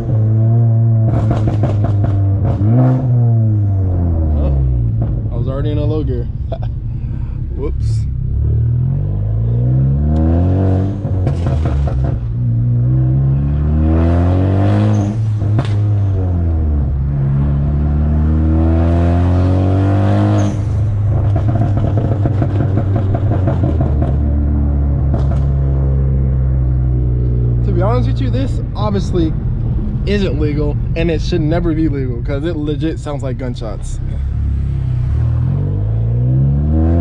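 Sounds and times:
car engine accelerating hard: 0:00.0 - 0:37.0
exhaust pops and crackles: 0:01.0 - 0:02.8, 0:04.8 - 0:06.7, 0:11.0 - 0:12.6, 0:14.9 - 0:16.0, 0:20.4 - 0:26.0.

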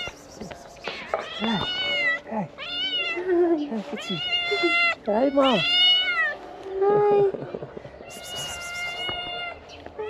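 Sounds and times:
kitten meowing: 0:08.1 - 0:09.6.

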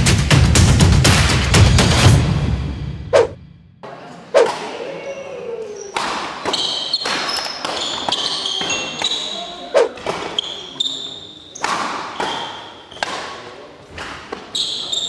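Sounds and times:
rackets hitting shuttlecock: 0:05.9 - 0:10.4, 0:11.6 - 0:14.5
sneakers squeaking on court: 0:06.5 - 0:11.6.

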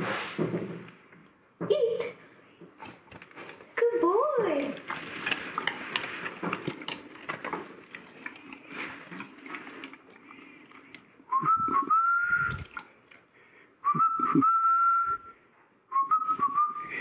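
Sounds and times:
person whistling sliding notes: 0:11.3 - 0:12.7, 0:15.9 - 0:17.0.

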